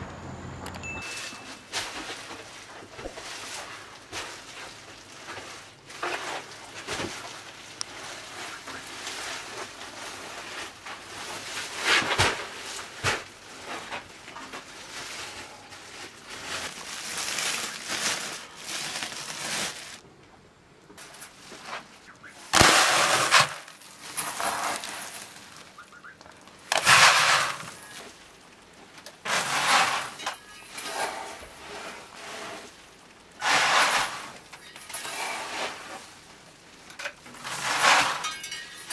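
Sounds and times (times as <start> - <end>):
plastic sack rustling: 1.0 - 20.0, 21.0 - 38.9
grain poured into plastic bucket: 22.5 - 25.7, 26.5 - 28.2, 29.2 - 36.4, 37.3 - 38.3.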